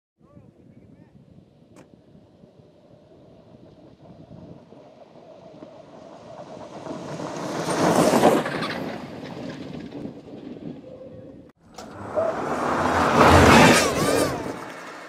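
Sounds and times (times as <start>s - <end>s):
electric race car passing by: 11.6s - 15.0s.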